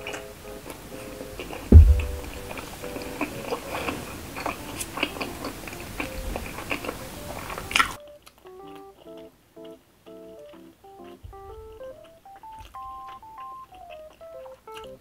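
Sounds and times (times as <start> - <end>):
light background music: 0.0 - 15.0
person chewing food: 3.8 - 9.8, 11.8 - 15.0.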